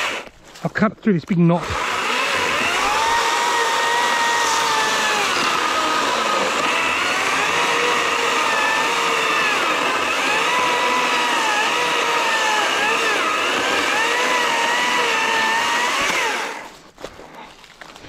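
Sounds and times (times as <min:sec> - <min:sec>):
electric chainsaw cutting log: 0:00.0 - 0:00.4, 0:01.6 - 0:16.7.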